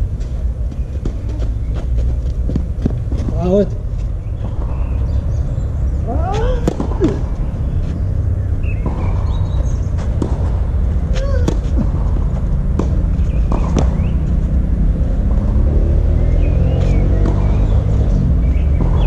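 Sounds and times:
low steady rumble: 0.0 - 19.0
birds chirping: 3.4 - 19.0
tennis racket hitting ball: 10.0 - 14.2.

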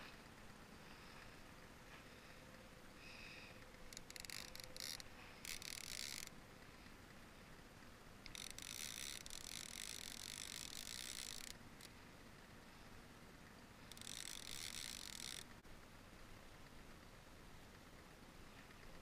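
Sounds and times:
fishing reel buzzing: 3.8 - 6.4, 8.2 - 11.9, 13.9 - 15.5.

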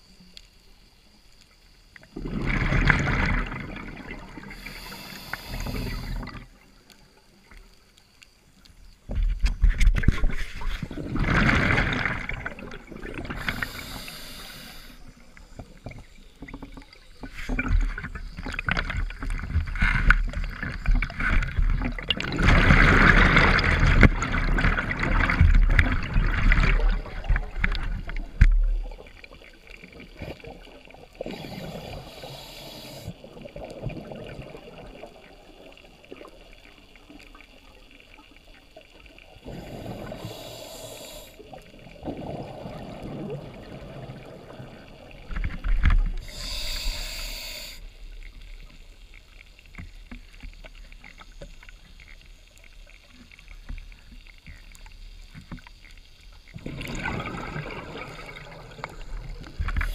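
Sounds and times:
underwater rumble: 0.0 - 59.9
exhaled bubbles rushing: 2.1 - 4.9, 10.0 - 14.0, 15.3 - 32.1, 33.2 - 36.7, 39.4 - 40.5, 41.4 - 46.2, 56.5 - 59.9
diver breathing through regulator: 4.5 - 6.3, 13.3 - 15.1, 31.2 - 33.2, 39.4 - 41.6, 46.2 - 48.0.

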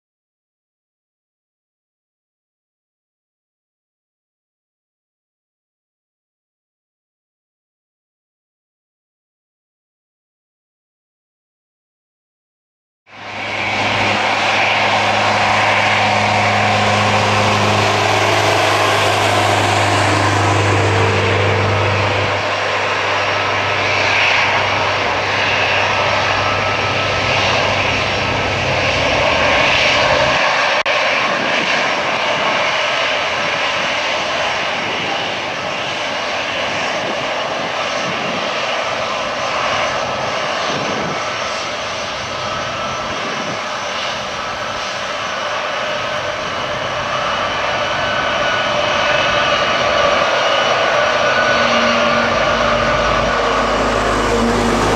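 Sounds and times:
jet engines roaring: 13.1 - 54.9.

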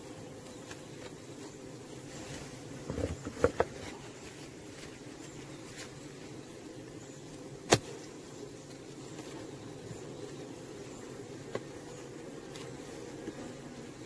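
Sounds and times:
honeybee colony humming: 0.0 - 14.0
wooden hive frames knocking: 2.7 - 4.0.

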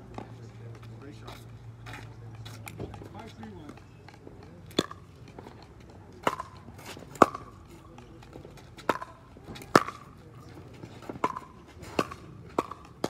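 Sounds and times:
paddles hitting plastic ball: 2.7 - 13.0.

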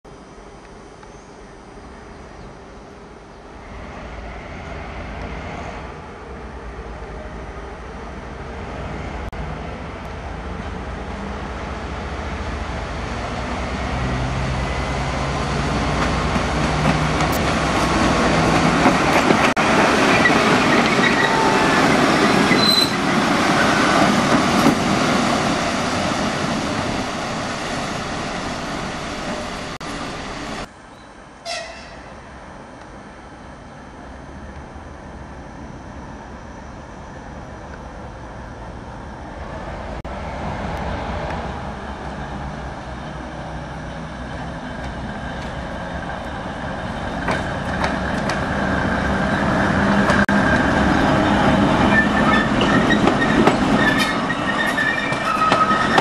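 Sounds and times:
diesel locomotive engine: 0.1 - 56.0
wheel and rail noise: 0.1 - 56.0.

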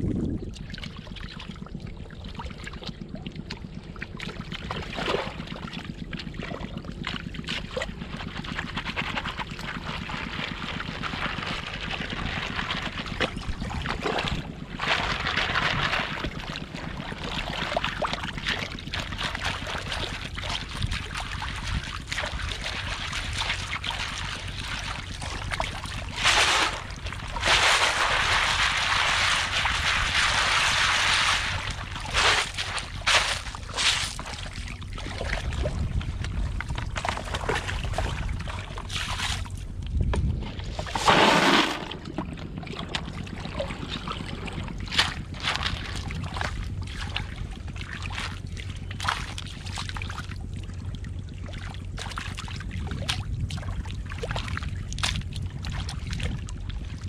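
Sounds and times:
water sloshing and splashing: 0.0 - 57.0
basket swished in water: 21.6 - 34.6, 40.6 - 42.2.

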